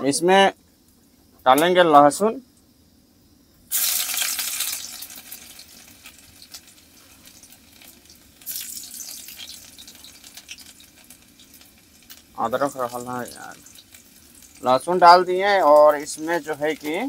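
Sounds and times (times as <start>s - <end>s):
garlic sizzling in hot oil: 3.7s - 17.0s.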